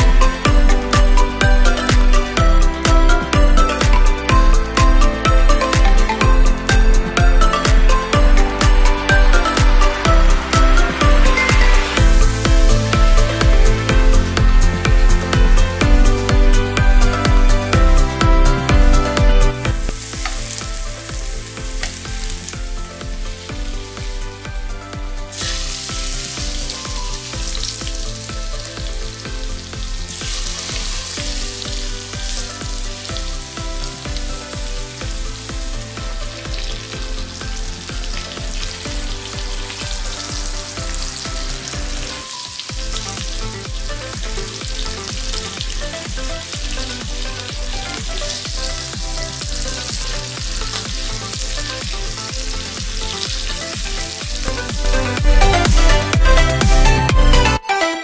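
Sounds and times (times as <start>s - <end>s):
electronic music with bass beat: 0.0s - 58.0s
steaks sizzling in a frying pan: 19.7s - 24.5s, 25.3s - 55.2s.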